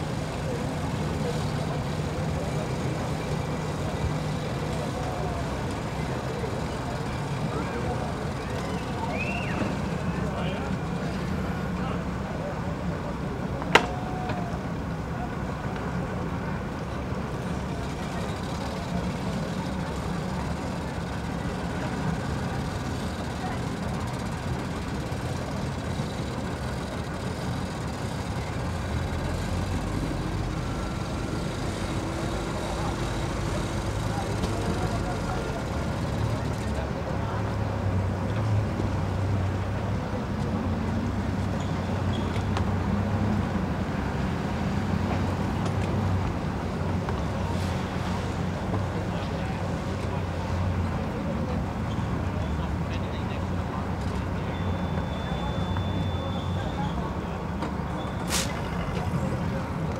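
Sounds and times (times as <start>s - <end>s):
engine idling: 16.9s - 37.4s.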